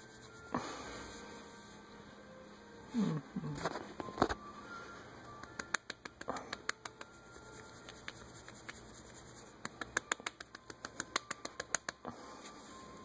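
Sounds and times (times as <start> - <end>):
hand rubbing dog fur rustling: 0.0 - 1.8.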